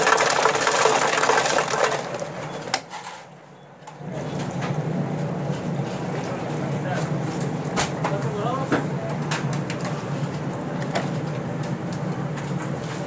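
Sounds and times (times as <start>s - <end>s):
soda fountain crackling rush: 0.0s - 2.8s.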